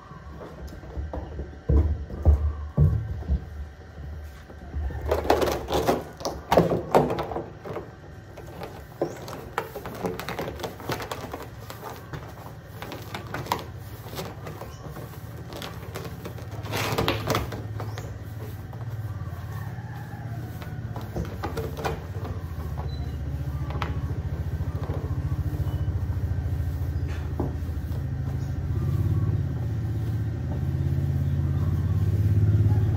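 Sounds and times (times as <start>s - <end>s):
plastic drum knocking and scraping: 0.3s - 3.7s, 4.7s - 26.3s.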